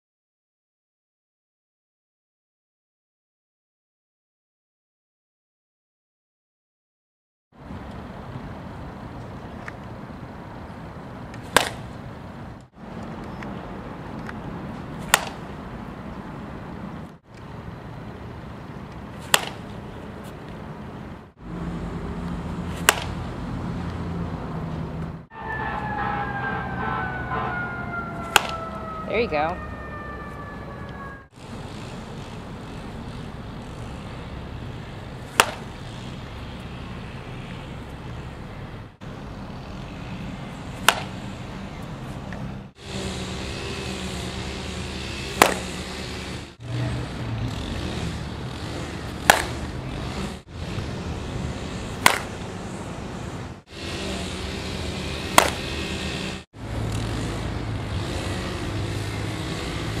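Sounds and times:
outdoor background hum: 7.6 - 60.0
bat cracking balls: 11.3 - 12.0, 15.0 - 15.6, 18.9 - 19.8, 22.7 - 23.3, 28.3 - 28.6, 35.2 - 36.1, 40.8 - 41.3, 45.2 - 45.9, 49.1 - 49.8, 51.9 - 52.5, 55.2 - 55.9.

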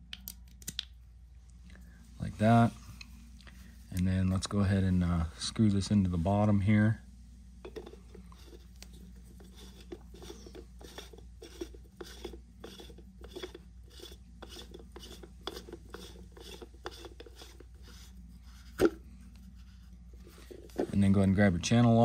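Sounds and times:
plastic threads scraping: 7.8 - 21.3.

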